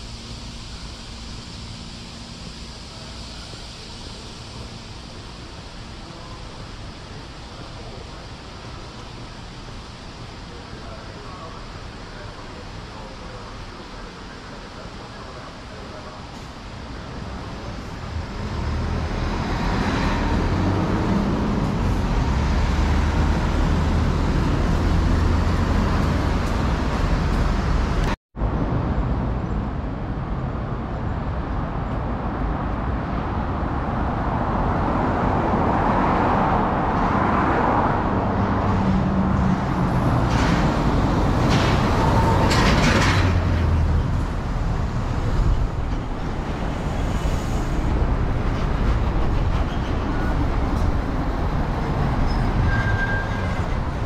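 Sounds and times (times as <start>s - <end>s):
road traffic hum and tyre noise: 0.0s - 54.0s
vehicle passing by: 18.2s - 28.0s.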